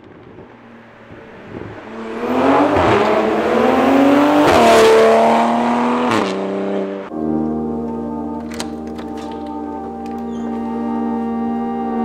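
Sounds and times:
car engine accelerating hard: 0:00.0 - 0:07.1.

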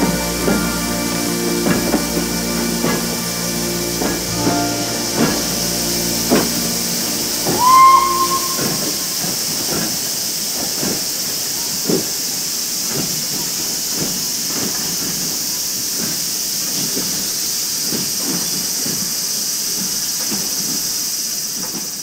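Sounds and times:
steam whistle blast: 0:00.0 - 0:09.6
locomotive exhaust chuffs: 0:00.0 - 0:10.8
steam hissing: 0:00.0 - 0:22.0.

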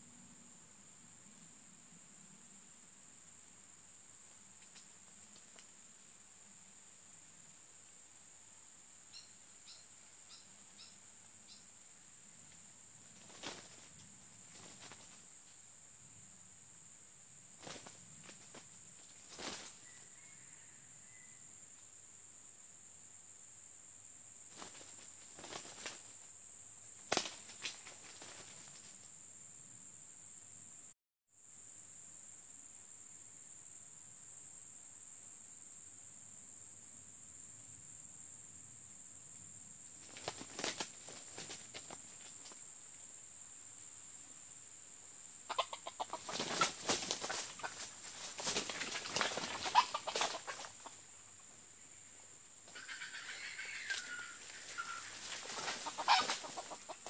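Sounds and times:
insect drone: 0:00.0 - 0:57.0
roosters flapping and scuffling: 0:13.0 - 0:15.3, 0:17.6 - 0:20.0, 0:24.5 - 0:26.3, 0:27.0 - 0:29.1, 0:40.0 - 0:42.6, 0:45.5 - 0:51.2, 0:52.6 - 0:57.0
junglefowl clucking: 0:45.5 - 0:48.0, 0:48.9 - 0:51.0, 0:52.7 - 0:57.0.

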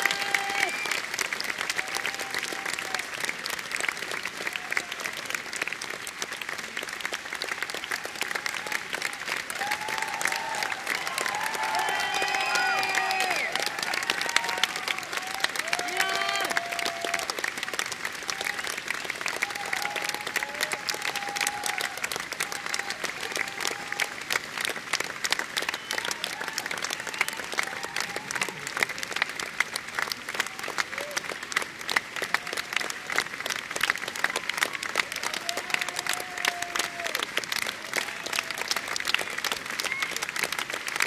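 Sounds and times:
crowd shouts: 0:00.0 - 0:00.9, 0:08.0 - 0:17.3, 0:19.3 - 0:24.2, 0:35.1 - 0:37.2
audience applauding: 0:00.0 - 0:41.0.

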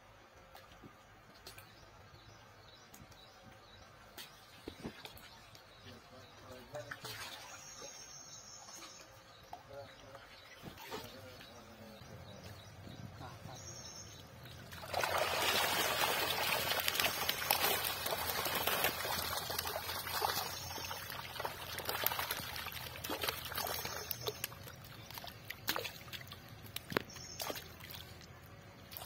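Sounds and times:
water splashes: 0:04.1 - 0:08.1, 0:08.7 - 0:12.2, 0:14.3 - 0:29.0
fish thrashing in a net: 0:14.6 - 0:28.2
water pouring off a net: 0:14.7 - 0:26.4.

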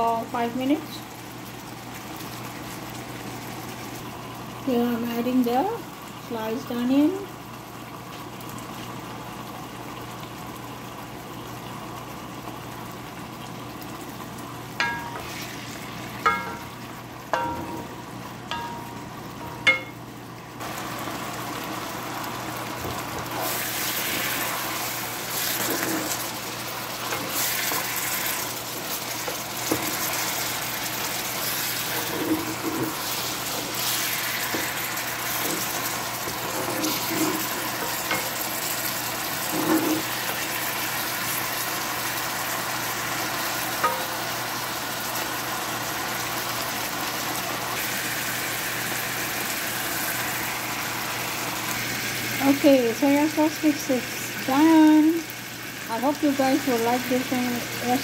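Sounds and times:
food sizzling in a frying pan: 0:00.0 - 0:58.0
spatula stirring pan: 0:14.8 - 0:17.9, 0:22.9 - 0:41.6, 0:43.8 - 0:44.3
ringing clinks against pan: 0:18.5 - 0:20.0.

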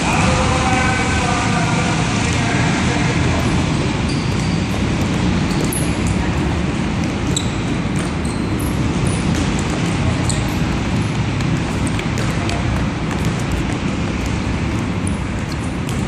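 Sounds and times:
low rumble of gym noise: 0:00.0 - 0:16.0
sneaker squeaks: 0:03.4 - 0:16.0
ball touches on court floor: 0:09.1 - 0:16.0.

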